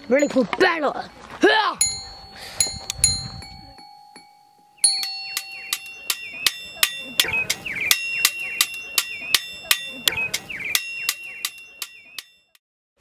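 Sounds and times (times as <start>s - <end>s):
hammer ringing on anvil: 3.7s - 10.2s, 10.8s - 12.2s.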